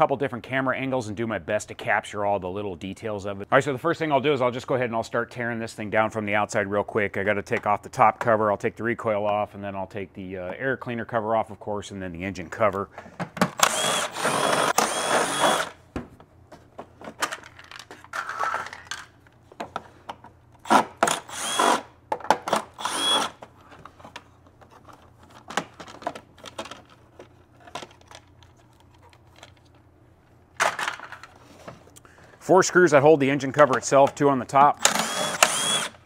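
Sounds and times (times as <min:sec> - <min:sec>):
cordless power driver whirring: 0:13.6 - 0:15.8, 0:20.6 - 0:21.9, 0:22.6 - 0:23.4, 0:34.8 - 0:36.0
plastic parts clattering: 0:16.8 - 0:20.3, 0:22.1 - 0:29.8, 0:30.6 - 0:32.0.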